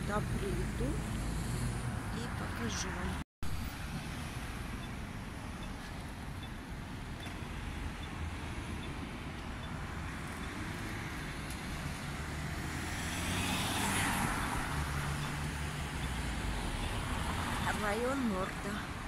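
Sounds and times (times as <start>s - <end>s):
vehicle passing: 0.0s - 3.2s, 7.5s - 18.9s
rumble of city traffic: 0.0s - 19.0s.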